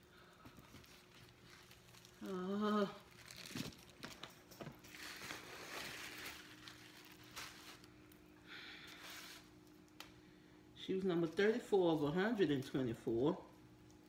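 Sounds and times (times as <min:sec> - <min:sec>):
paper rustling and crinkling: 0:00.5 - 0:02.4, 0:03.0 - 0:08.2
person humming: 0:02.2 - 0:03.1.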